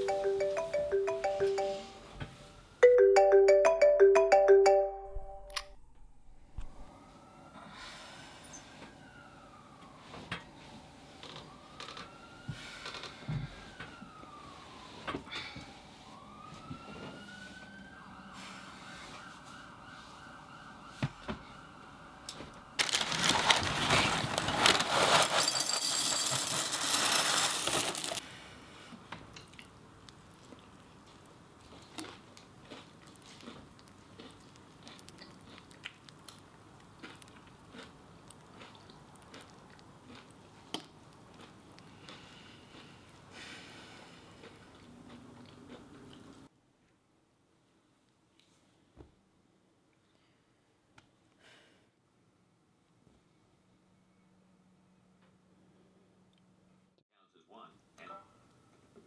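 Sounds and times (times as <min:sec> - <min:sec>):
siren wailing: 0:06.8 - 0:22.8
chewing: 0:29.3 - 0:43.0, 0:44.3 - 0:46.3.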